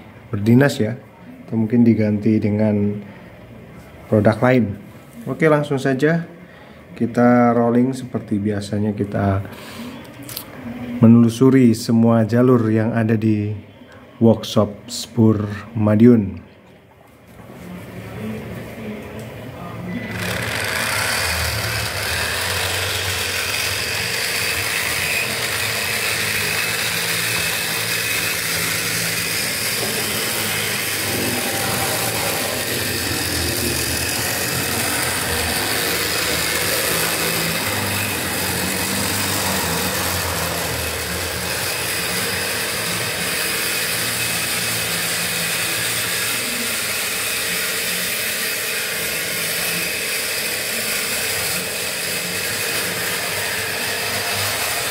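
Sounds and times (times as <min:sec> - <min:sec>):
model train motor whirring: 0:20.0 - 0:54.9.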